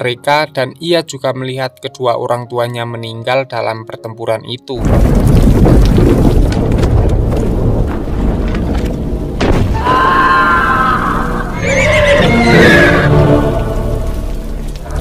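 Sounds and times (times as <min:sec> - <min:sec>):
heavy rain: 0:04.8 - 0:15.0
sharp thud: 0:09.4 - 0:09.8.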